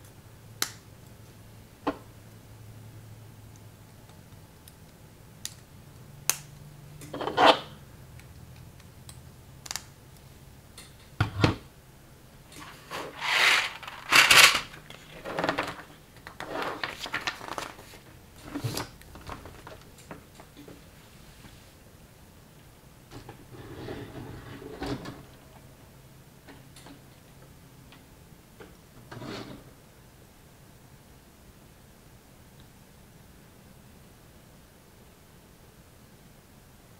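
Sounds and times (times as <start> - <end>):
plastic bricks clattering: 13.0 - 16.4.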